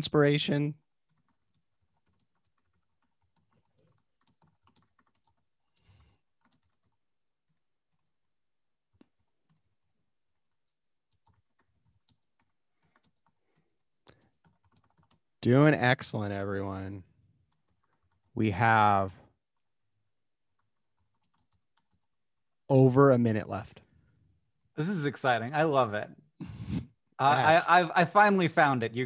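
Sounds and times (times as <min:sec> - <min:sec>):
computer keyboard keystrokes: 0:01.0 - 0:08.1, 0:11.1 - 0:15.2, 0:20.6 - 0:22.2.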